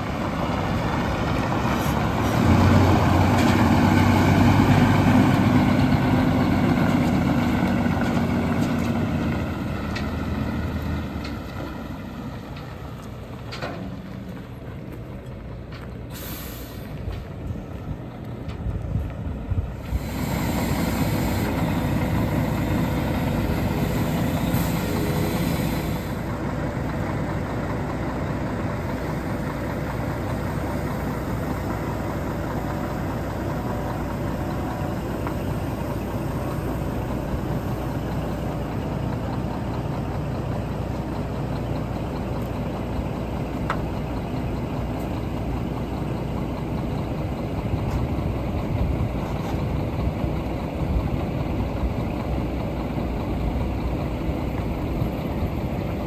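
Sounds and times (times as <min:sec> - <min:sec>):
truck diesel engine idling: 0:00.0 - 0:56.0
engine hiss: 0:16.0 - 0:17.2, 0:19.7 - 0:56.0.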